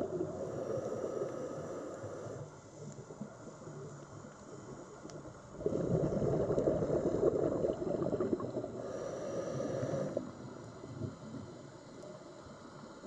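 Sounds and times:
diver's breath bubbling underwater: 5.6 - 10.3.

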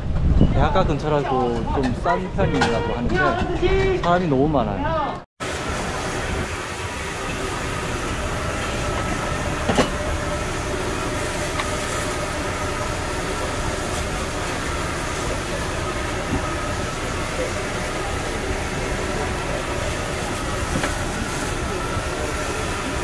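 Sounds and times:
busy kitchen roar: 0.0 - 23.0.

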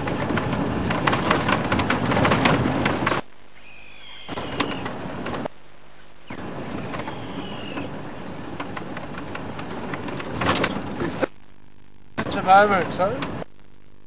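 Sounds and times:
vehicle driving on dirt track: 0.0 - 3.3, 6.3 - 11.3
vehicle rattles and knocks: 0.0 - 3.3, 6.3 - 11.3.

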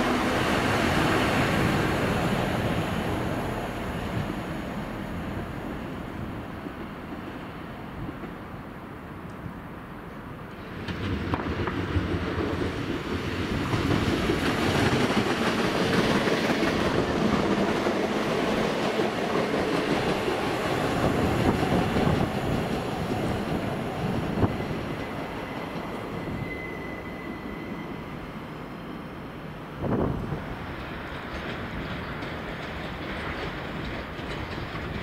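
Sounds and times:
train wheels on rails: 0.0 - 35.0
high wheel squeal: 24.6 - 29.0.

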